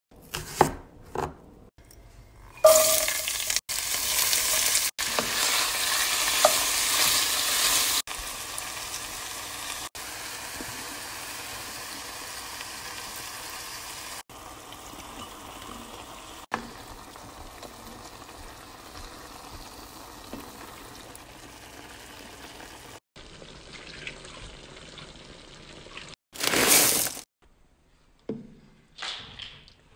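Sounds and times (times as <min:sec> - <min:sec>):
meat and vegetables sizzling: 0:02.7 - 0:23.7.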